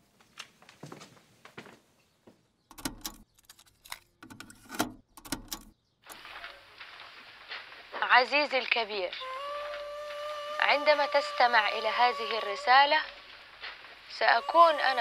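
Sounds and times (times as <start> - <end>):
cassette plastic clicks: 2.7 - 6.2
tape hiss: 6.1 - 15.0.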